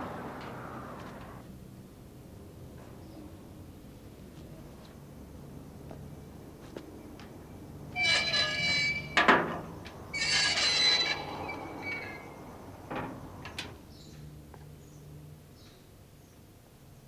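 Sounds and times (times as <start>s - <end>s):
door creaking open: 7.9s - 13.8s.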